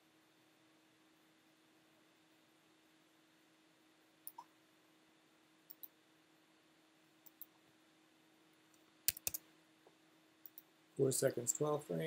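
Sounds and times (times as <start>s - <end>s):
faint steady hum: 0.0s - 12.0s
computer mouse clicks: 4.2s - 4.5s, 5.7s - 6.0s, 7.2s - 7.6s, 8.7s - 9.4s, 10.4s - 10.7s.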